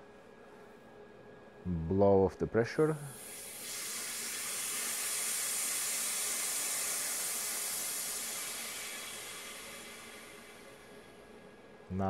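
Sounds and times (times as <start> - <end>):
pressurised air hissing: 3.0 - 11.4.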